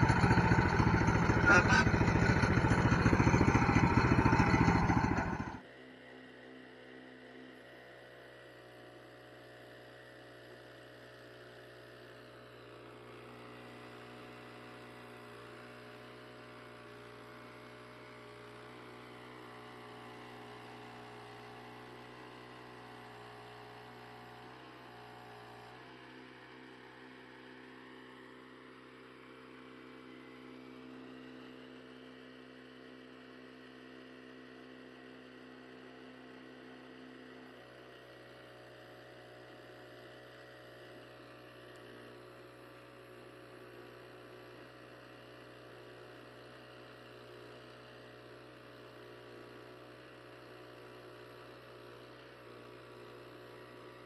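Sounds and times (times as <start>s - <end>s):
saw blade cutting log: 0.0s - 5.6s
small gasoline engine running: 0.0s - 54.0s.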